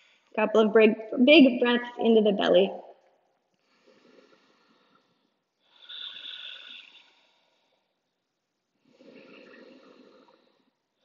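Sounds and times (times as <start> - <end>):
woman breathing deeply: 3.6 - 8.0, 8.8 - 11.0.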